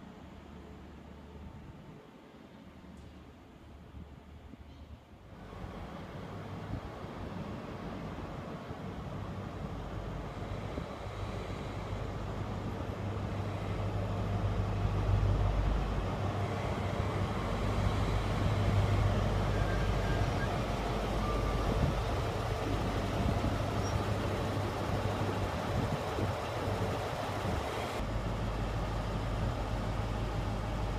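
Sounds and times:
diesel train engine humming: 0:05.3 - 0:30.9.

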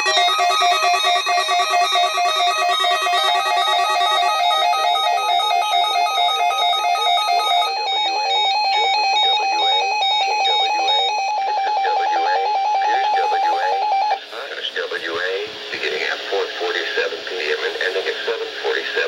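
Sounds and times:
electronic alarm beeps: 0:00.0 - 0:14.3
rapidly pulsing tone: 0:00.0 - 0:15.0.

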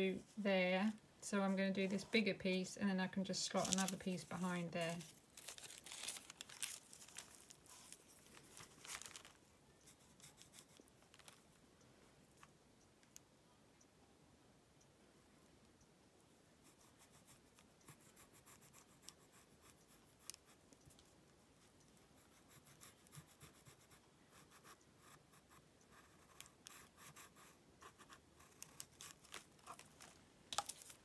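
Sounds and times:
pencil scratching on paper: 0:09.8 - 0:10.8, 0:16.6 - 0:20.6, 0:22.0 - 0:29.2.

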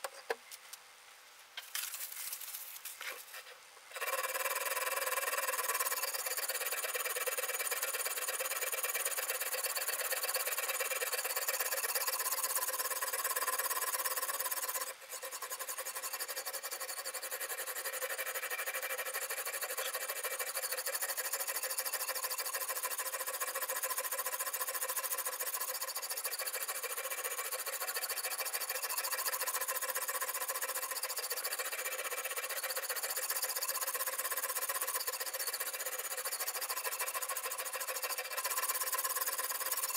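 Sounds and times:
sharpening stone scraping knife: 0:04.0 - 0:39.9.

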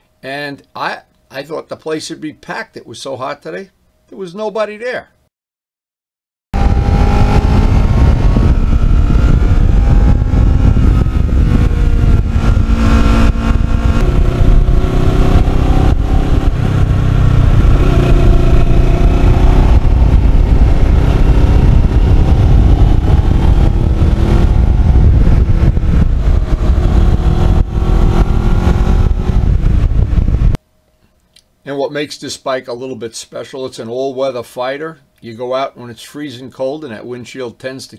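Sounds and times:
motorcycle engine running: 0:06.6 - 0:30.6
wind rushing on microphone: 0:06.6 - 0:30.6.

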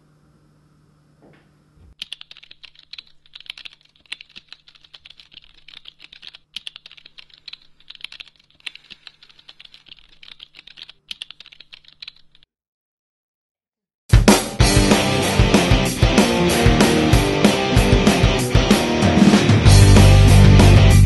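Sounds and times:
rapid laptop keyboard typing: 0:02.0 - 0:12.5.

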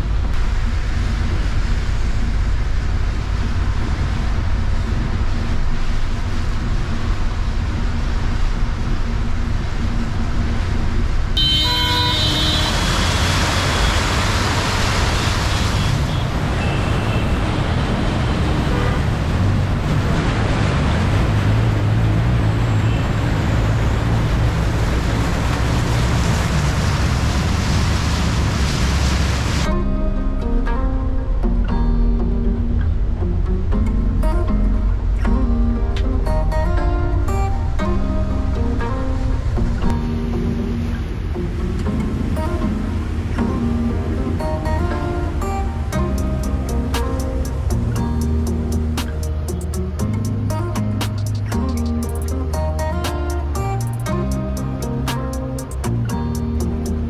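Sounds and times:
bus engine and tyres rumbling: 0:00.0 - 0:57.0
horn toot: 0:11.4 - 0:14.2, 0:15.1 - 0:17.5, 0:18.6 - 0:19.4.

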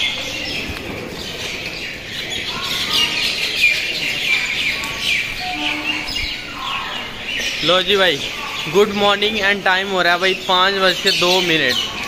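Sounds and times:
small birds chirping: 0:00.0 - 0:12.0.

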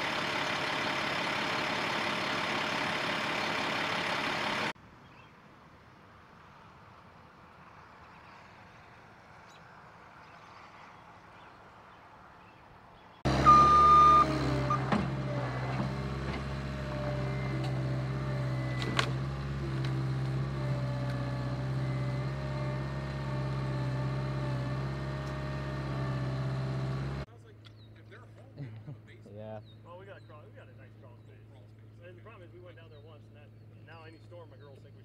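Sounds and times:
diesel engine under load: 0:00.0 - 0:04.8, 0:13.2 - 0:27.3
brief high beep: 0:13.4 - 0:14.4.

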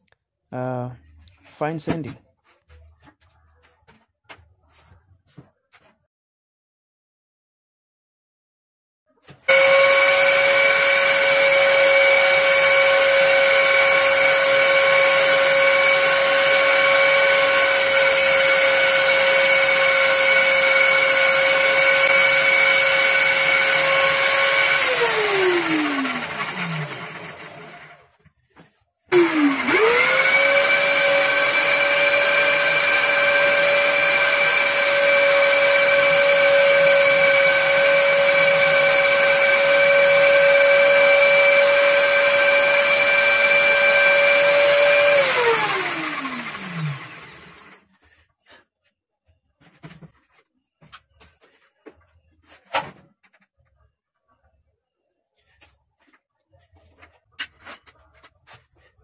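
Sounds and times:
electric drill spinning: 0:09.5 - 0:28.1, 0:29.1 - 0:47.9.

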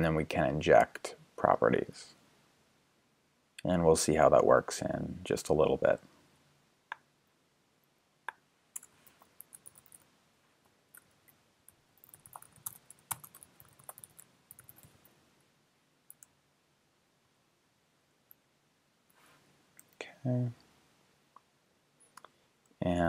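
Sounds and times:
typing on computer keyboard: 0:08.8 - 0:10.0, 0:12.0 - 0:15.0.

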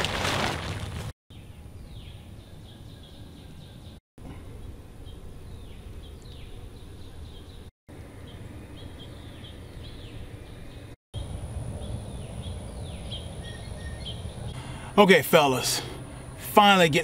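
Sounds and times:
small birds chirping: 0:01.3 - 0:15.0
wind rumble: 0:11.2 - 0:14.9.

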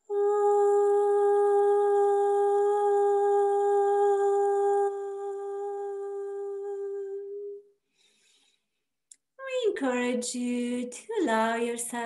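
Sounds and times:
woman humming a long note: 0:00.0 - 0:07.6.

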